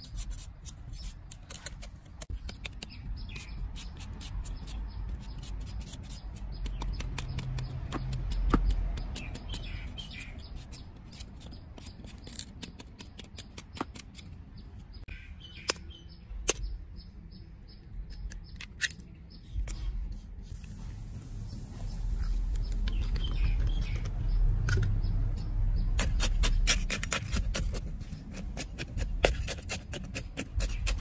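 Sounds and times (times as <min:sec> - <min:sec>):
knife cutting sweet potato: 0:25.9 - 0:31.0.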